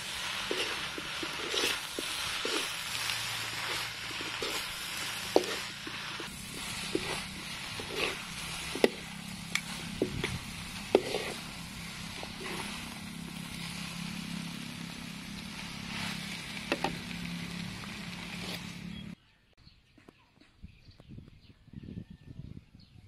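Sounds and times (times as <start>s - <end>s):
metal spatula scraping a pan: 0.0s - 14.4s
food sizzling in a wok: 0.0s - 19.2s.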